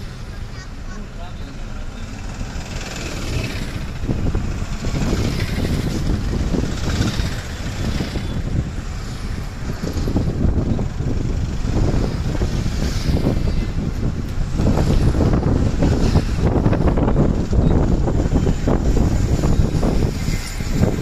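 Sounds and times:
car engine and tyre rumble: 0.0s - 21.0s.

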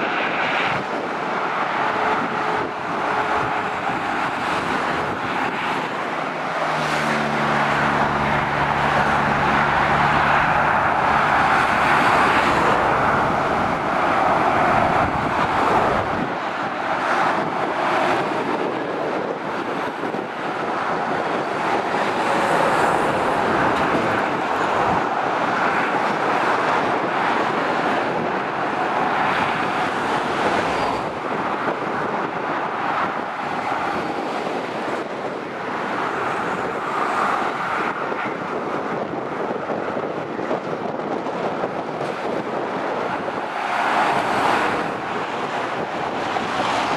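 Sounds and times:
motorway traffic roar: 0.0s - 46.9s.

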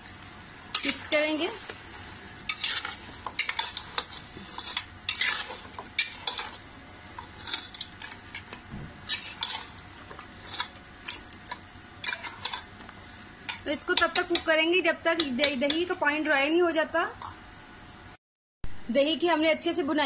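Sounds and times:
light sizzle of frying: 0.0s - 17.6s
metal spatula scraping pot: 2.5s - 6.6s, 7.2s - 11.2s, 12.0s - 12.7s.

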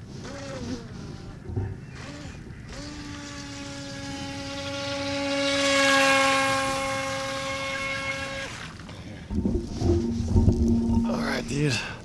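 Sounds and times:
toy boat electric motor whine: 0.2s - 8.8s.

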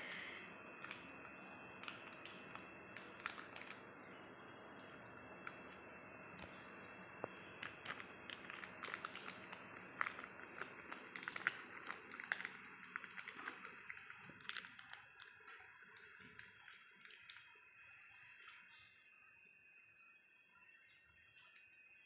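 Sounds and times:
butter paper crinkling: 0.8s - 3.8s, 7.6s - 17.6s.

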